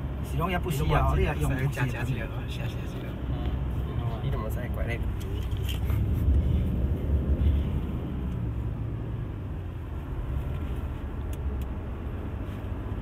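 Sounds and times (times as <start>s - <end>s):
diesel engine rumble in cabin: 0.0s - 13.0s
tyre road noise: 0.0s - 13.0s.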